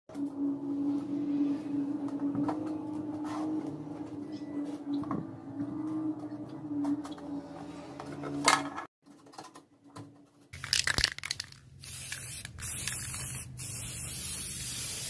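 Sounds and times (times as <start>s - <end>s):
spray paint can hissing: 10.7s - 15.0s.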